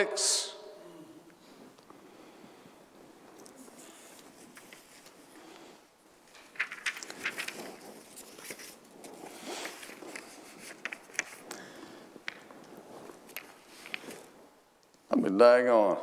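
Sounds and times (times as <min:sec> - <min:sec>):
paper rustling and shuffling: 0:03.3 - 0:05.4, 0:06.2 - 0:14.4
small crackles and taps: 0:10.2 - 0:15.0.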